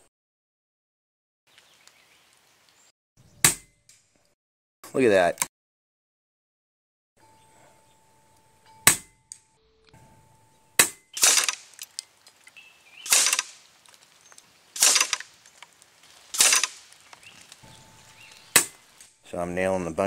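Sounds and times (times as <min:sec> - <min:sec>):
pellets hitting steel targets: 0:10.8 - 0:11.9, 0:13.0 - 0:13.6, 0:14.8 - 0:15.4, 0:16.3 - 0:16.9
air rifle cracks: 0:10.8 - 0:17.6.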